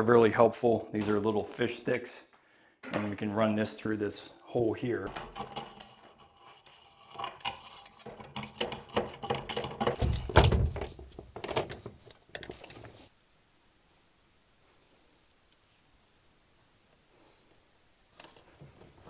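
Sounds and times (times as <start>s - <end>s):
handling clicks and rustles: 7.4s - 13.1s.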